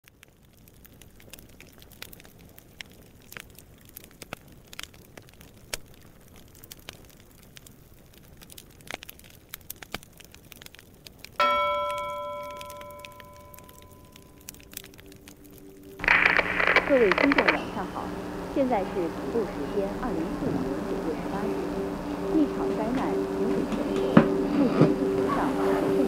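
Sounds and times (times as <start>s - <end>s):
sparse crackling clicks: 0.0s - 25.2s
struck bell ringing: 11.4s - 14.3s.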